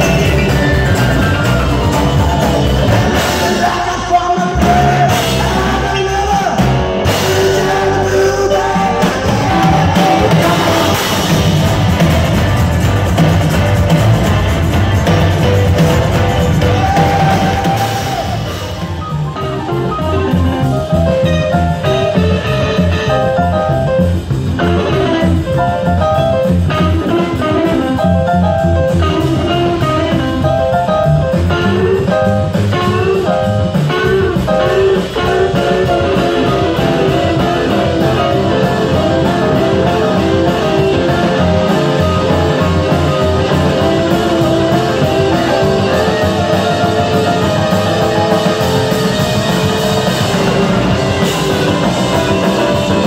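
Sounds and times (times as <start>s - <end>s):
plucked upright double bass: 0.0s - 17.1s
drum kit: 0.0s - 53.0s
fast electric guitar lines: 0.0s - 53.0s.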